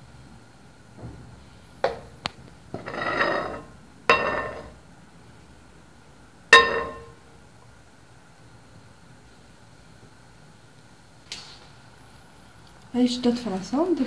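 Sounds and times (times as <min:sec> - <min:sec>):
ladle scraping dish: 0:02.8 - 0:04.7
ladle clinking on dish: 0:02.9 - 0:04.7, 0:06.6 - 0:07.2.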